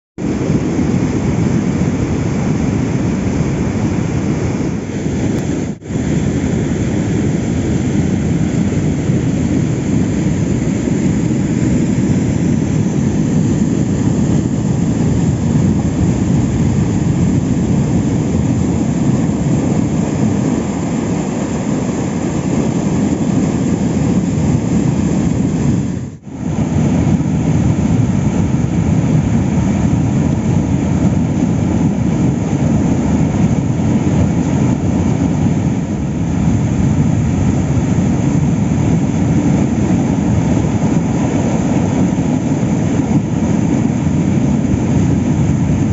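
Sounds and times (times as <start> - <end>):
water rushing over weir: 0.2 - 45.9.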